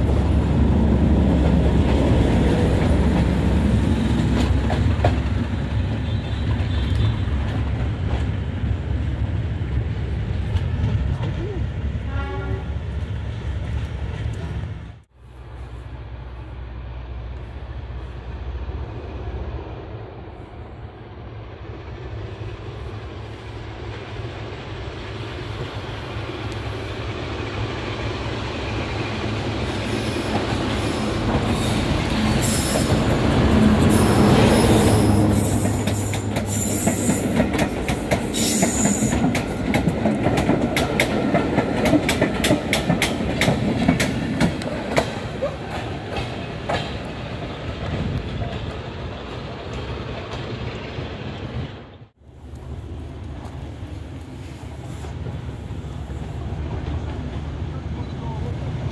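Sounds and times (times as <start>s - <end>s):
wheels clacking over rail joints: 0.0s - 9.6s, 29.1s - 50.9s
diesel locomotive engine: 0.0s - 58.9s
high wheel squeal: 29.7s - 33.2s, 33.8s - 37.4s.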